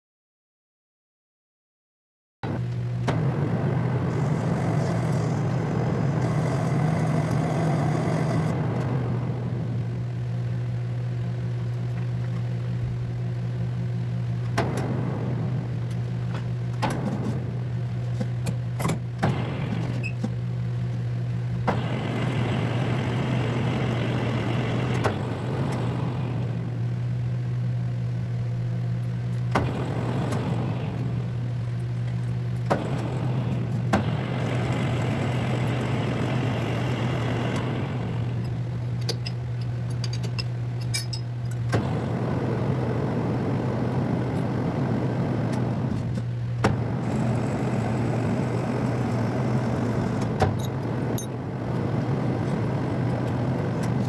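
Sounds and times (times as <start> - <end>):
lathe motor hum: 3.0 - 10.2, 21.5 - 27.2, 29.4 - 39.0, 41.7 - 54.0
metal cutting noise: 3.1 - 9.2, 21.6 - 26.8, 29.5 - 31.5, 32.6 - 39.7, 40.8 - 54.0.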